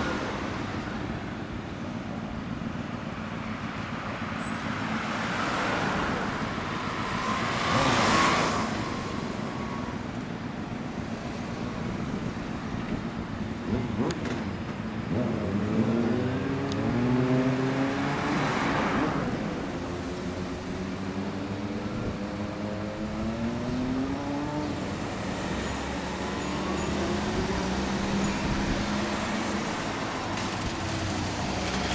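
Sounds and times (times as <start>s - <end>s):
traffic hum: 0.0s - 31.9s
motorcycle accelerating through gears: 13.6s - 31.9s.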